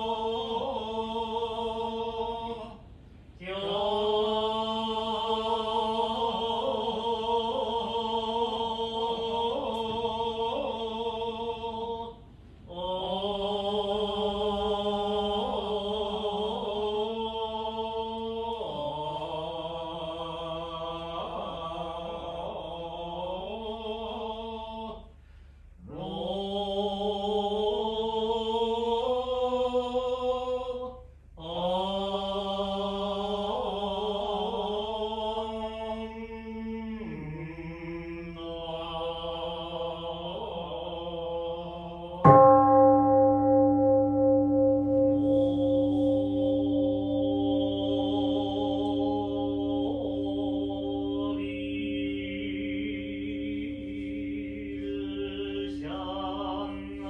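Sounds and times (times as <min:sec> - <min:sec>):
priest chanting in held notes: 0:36.4 - 0:57.0.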